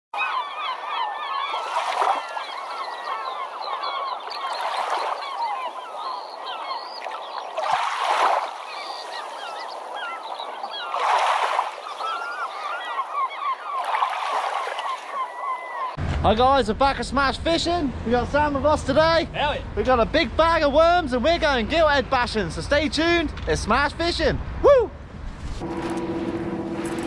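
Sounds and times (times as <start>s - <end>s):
flock of birds calling: 0.2s - 16.0s.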